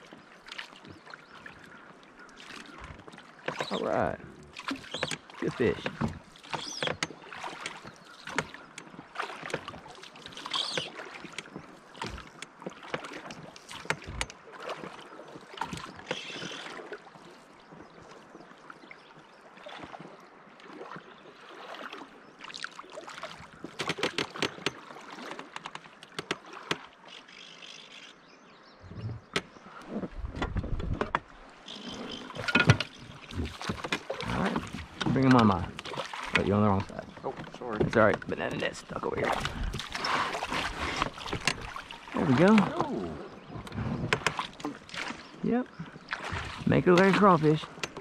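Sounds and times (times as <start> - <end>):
water lapping against boat hull: 0.0 - 48.0
clicks and knocks of gear: 23.6 - 24.8, 25.4 - 28.1.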